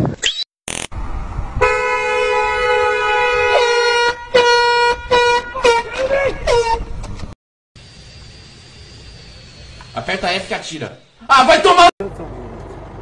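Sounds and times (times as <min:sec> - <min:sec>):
car horn honking: 0:01.6 - 0:06.9.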